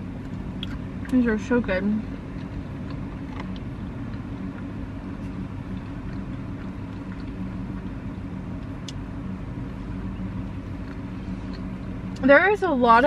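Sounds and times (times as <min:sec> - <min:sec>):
car engine idling hum: 0:00.0 - 0:13.0
chewing clicks: 0:02.3 - 0:04.7, 0:05.7 - 0:07.9, 0:10.6 - 0:12.2.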